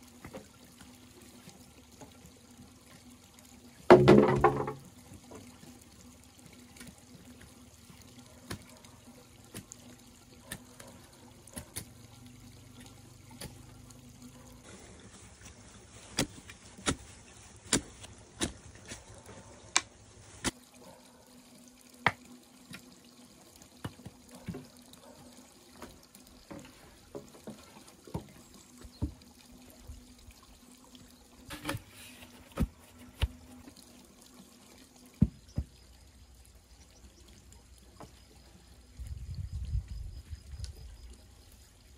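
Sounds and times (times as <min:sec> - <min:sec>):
knocks and taps on bamboo: 0:03.9 - 0:04.9, 0:35.2 - 0:35.8.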